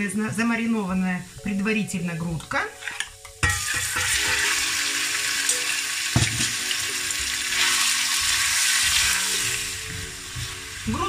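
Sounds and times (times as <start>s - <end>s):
chicken sizzling in oil: 3.4s - 11.0s
knock: 6.2s - 6.5s.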